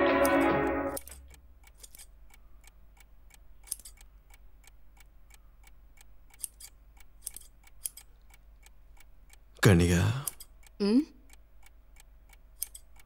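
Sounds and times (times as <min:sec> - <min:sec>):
scissors snipping hair: 0:01.0 - 0:02.1, 0:03.6 - 0:04.0, 0:06.4 - 0:08.1, 0:12.6 - 0:12.9.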